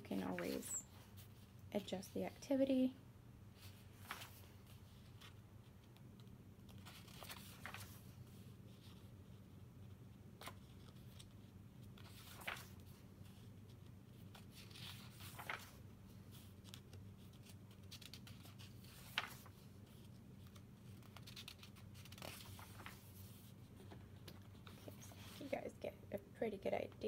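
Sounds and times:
faint low steady hum: 0.0s - 27.0s
paper pages turning: 0.1s - 1.5s, 3.6s - 9.4s, 10.4s - 25.6s.

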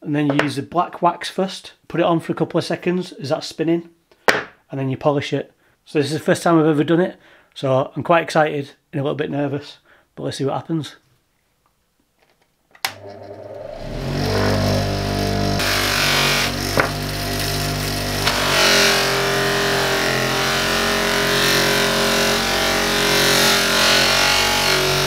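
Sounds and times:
bench polisher motor humming: 12.9s - 25.0s
buffing wheel rushing hiss: 13.0s - 18.3s.

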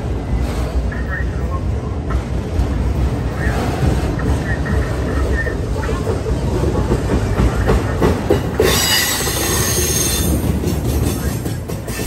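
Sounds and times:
train wheels rumbling on rail: 0.0s - 12.0s
high wheel squeal: 8.6s - 10.4s.

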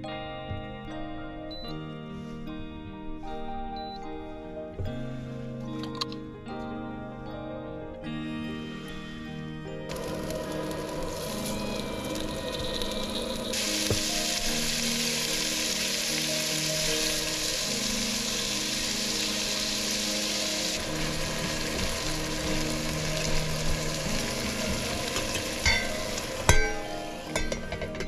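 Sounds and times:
food sizzling in a pan: 9.9s - 28.0s.

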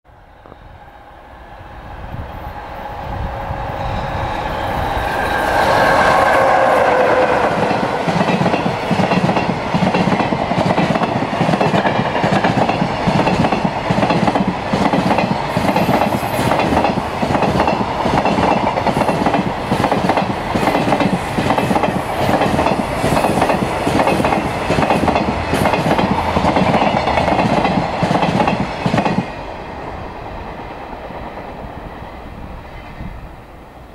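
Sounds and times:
electric locomotive passing: 0.1s - 33.9s
wagon wheels clickety-clack on rails: 7.6s - 29.3s.

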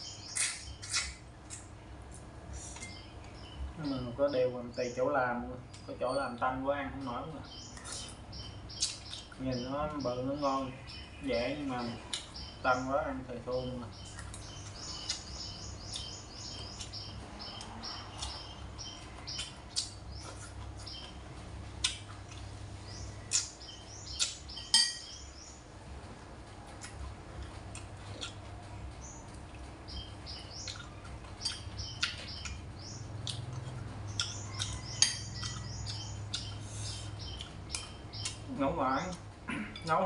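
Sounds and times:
small birds chirping: 0.0s - 25.8s, 26.4s - 40.0s
utensils clinking on ceramic bowl: 24.6s - 25.1s, 34.9s - 35.6s.

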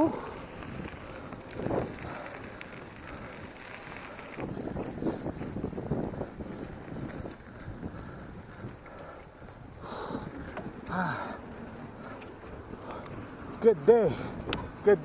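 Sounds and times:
wind on microphone: 0.0s - 10.9s
bike rattling with clicks: 0.0s - 15.0s
bike tyres rolling on dirt: 0.0s - 15.0s.

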